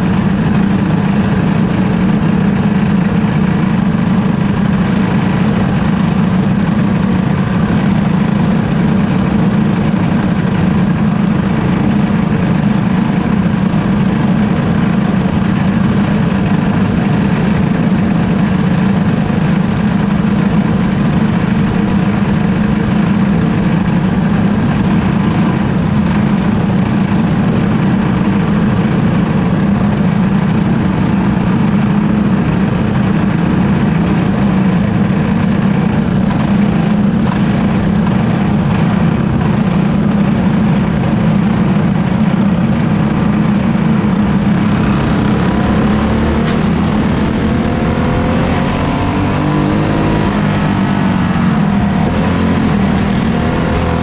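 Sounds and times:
kart engine at racing speed: 0:00.0 - 0:54.0
wind noise: 0:00.0 - 0:54.0.

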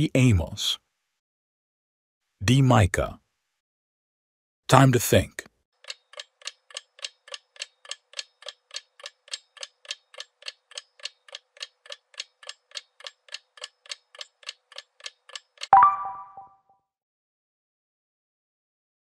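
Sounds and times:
clock ticking: 0:05.8 - 0:15.7.

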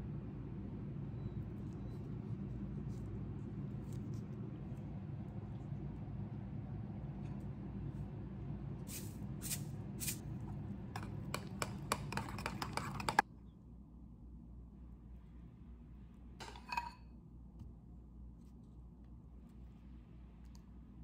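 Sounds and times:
metal spoon clinking against bowl: 0:16.4 - 0:17.0.

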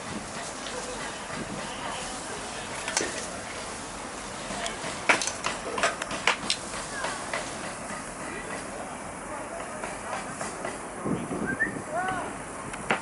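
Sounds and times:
street noise: 0:00.0 - 0:13.0.

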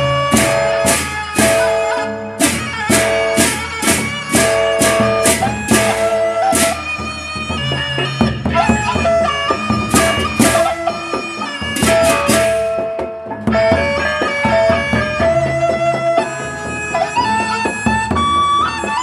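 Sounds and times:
hand cymbals clashing: 0:00.0 - 0:07.4, 0:09.5 - 0:13.0
barrel drums beaten: 0:00.0 - 0:16.7
gongs: 0:00.0 - 0:18.2
reedy melody: 0:00.0 - 0:19.0.

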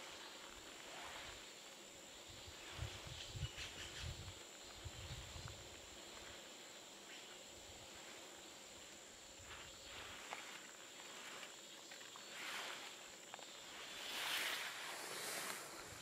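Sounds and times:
soft hiss: 0:00.0 - 0:16.0
rustling: 0:12.3 - 0:16.0.

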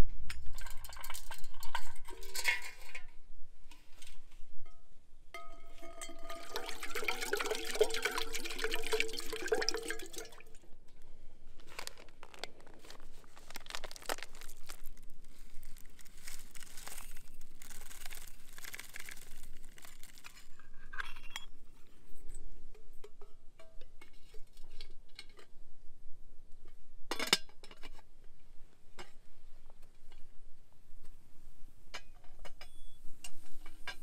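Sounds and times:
water pouring into metal pot: 0:05.8 - 0:10.6, 0:16.6 - 0:20.4
rustling: 0:10.9 - 0:20.7.

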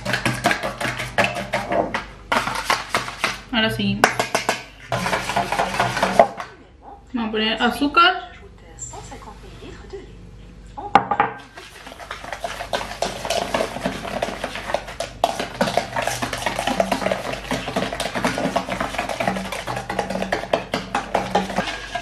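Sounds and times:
fork beating in metal bowl: 0:00.0 - 0:03.4, 0:04.0 - 0:06.5, 0:11.5 - 0:22.0.

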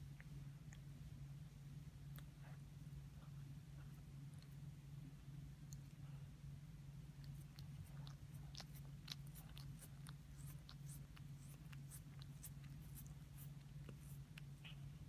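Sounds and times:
steady low hum: 0:00.0 - 0:15.0
cat licking fingers: 0:07.1 - 0:14.9.

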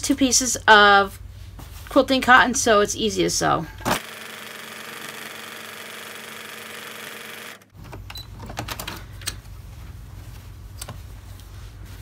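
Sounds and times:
sewing machine stitching: 0:03.9 - 0:07.7
fabric rustling: 0:09.6 - 0:12.0.

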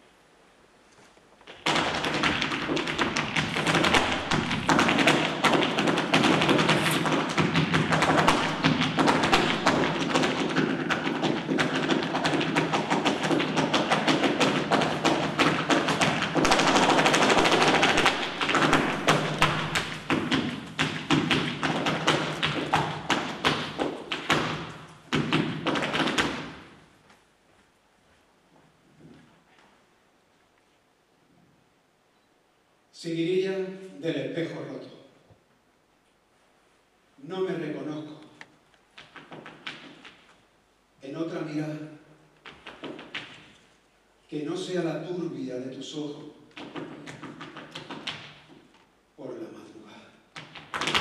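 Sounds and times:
rapid shoe strikes on stage floor: 0:01.5 - 0:26.9, 0:42.4 - 0:43.6, 0:46.5 - 0:48.8, 0:50.4 - 0:51.0.

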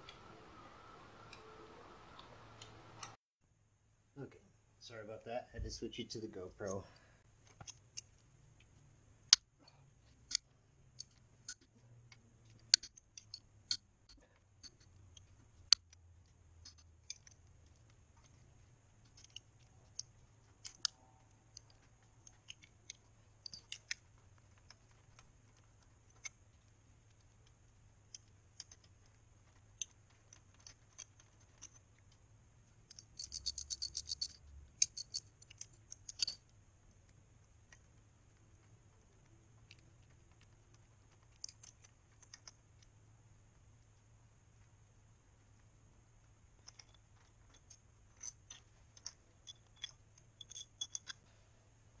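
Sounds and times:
sockets clinking on metal: 0:32.9 - 0:36.5, 0:46.6 - 0:51.3.

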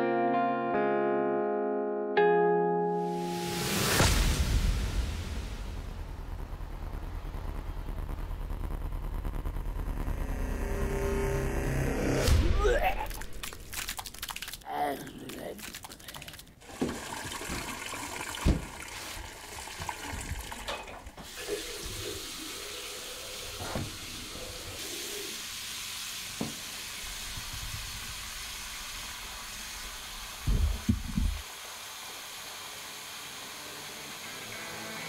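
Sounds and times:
tap water running into sink: 0:15.8 - 0:25.4, 0:26.1 - 0:31.8
knocks and thumps: 0:30.4 - 0:31.4.

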